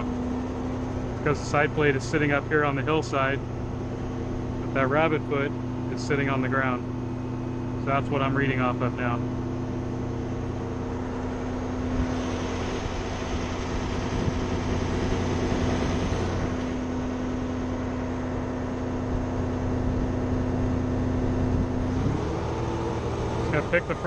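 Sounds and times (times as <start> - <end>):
cutting drum milling asphalt: 0.0 - 24.0
diesel engine droning: 0.0 - 24.0.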